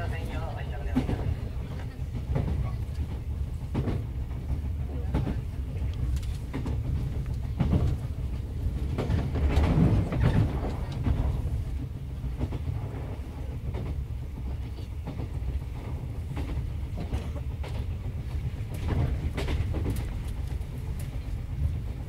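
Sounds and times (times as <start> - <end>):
train rumbling: 0.0 - 22.0
wheels clicking over rail joints: 16.2 - 22.0.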